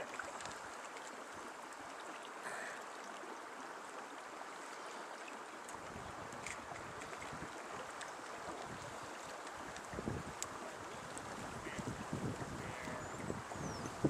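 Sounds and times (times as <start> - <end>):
creek water rushing: 0.0 - 14.0
wind buffeting microphone: 9.7 - 14.0.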